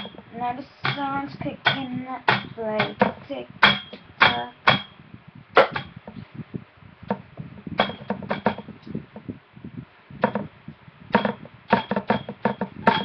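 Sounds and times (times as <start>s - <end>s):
hockey stick knocking: 0.9s - 4.8s, 7.8s - 8.7s, 11.2s - 13.0s.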